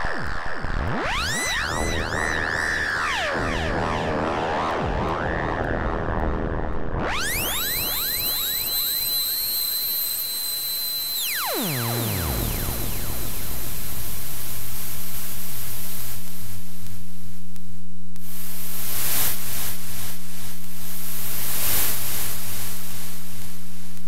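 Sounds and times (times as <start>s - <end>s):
synthesizer pitch dive to drone: 11.2s - 15.3s
filtered white noise hiss: 12.3s - 24.0s.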